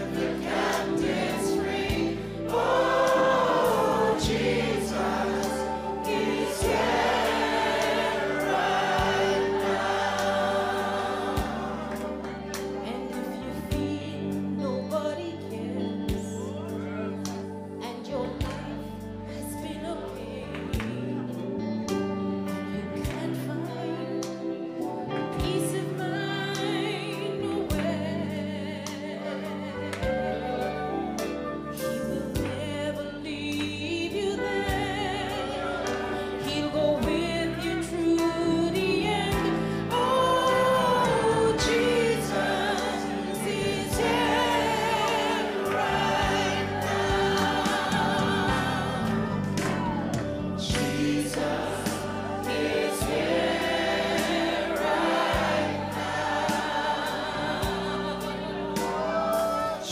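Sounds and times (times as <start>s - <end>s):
instrumental backing music: 0.0s - 59.9s
woman singing into a microphone: 12.8s - 17.0s, 17.8s - 21.5s, 22.8s - 45.8s.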